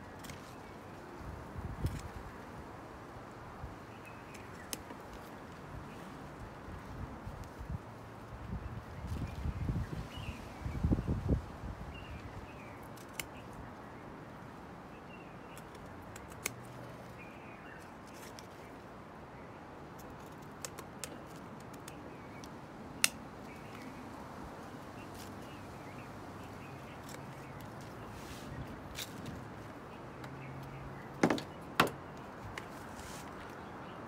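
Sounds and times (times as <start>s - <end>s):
cutters snipping branches: 12.8s - 13.5s, 15.5s - 17.1s, 20.0s - 23.8s.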